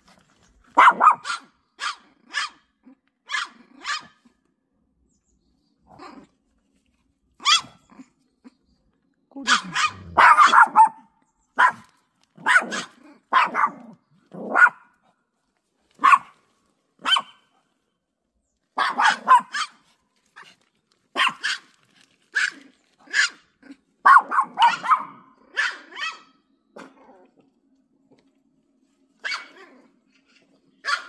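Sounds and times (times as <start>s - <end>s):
small dogs barking: 0.7s - 4.3s, 5.9s - 6.3s, 7.4s - 8.6s, 9.4s - 15.2s, 15.9s - 16.4s, 17.0s - 17.7s, 18.7s - 27.4s, 29.2s - 31.0s.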